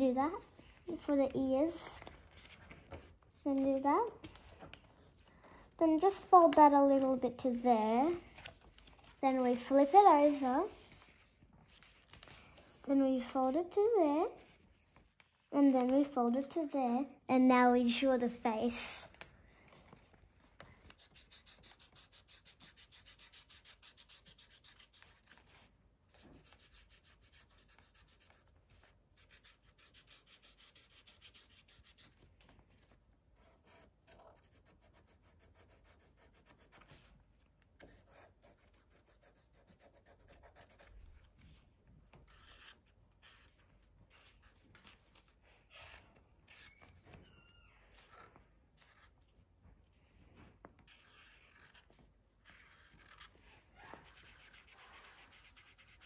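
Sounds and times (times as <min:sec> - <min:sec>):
marker scratching on paper: 0:09.3 - 0:12.0, 0:20.9 - 0:32.2, 0:33.4 - 0:37.1, 0:37.8 - 0:41.0, 0:42.3 - 0:46.8, 0:50.8 - 0:56.0.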